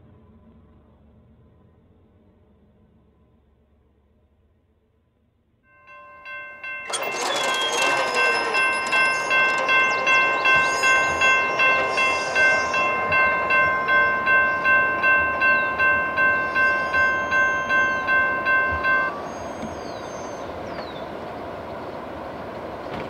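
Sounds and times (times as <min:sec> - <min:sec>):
crossing bell ringing: 0:05.7 - 0:20.4
freight train rumble: 0:05.8 - 0:23.0.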